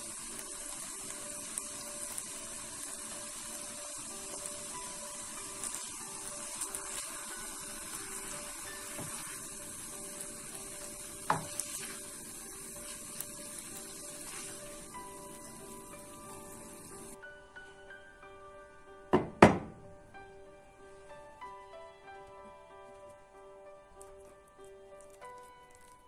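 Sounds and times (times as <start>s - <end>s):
food sizzling in a frying pan: 0.0s - 26.0s
utensil knocking against pan: 19.2s - 19.8s.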